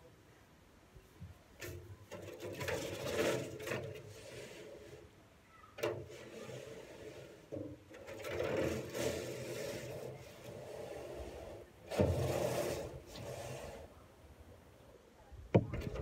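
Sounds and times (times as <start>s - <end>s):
tool scraping wheelbarrow: 1.6s - 13.9s.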